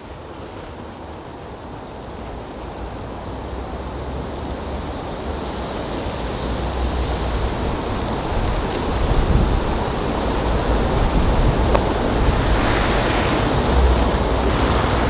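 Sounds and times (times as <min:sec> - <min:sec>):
wind buffeting microphone: 0:06.6 - 0:15.0.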